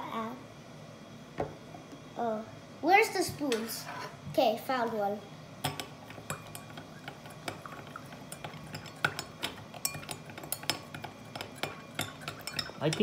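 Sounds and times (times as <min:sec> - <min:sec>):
metal spoon clinking against glass: 0:05.6 - 0:13.0.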